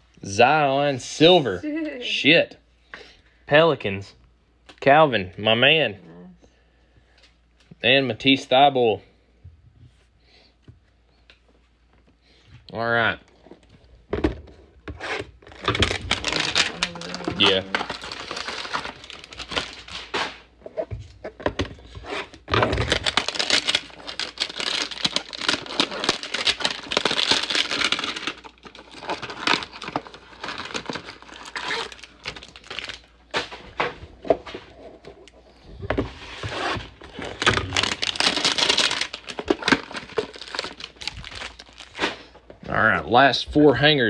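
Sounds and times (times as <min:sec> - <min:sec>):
plastic wrapper crinkling and tearing: 0:15.3 - 0:20.4, 0:22.2 - 0:33.3, 0:36.4 - 0:42.3.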